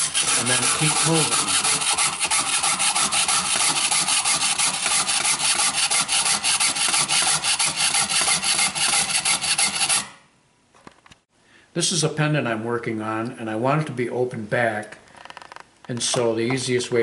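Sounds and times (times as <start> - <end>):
saw blade cutting back and forth: 0.0 - 10.2.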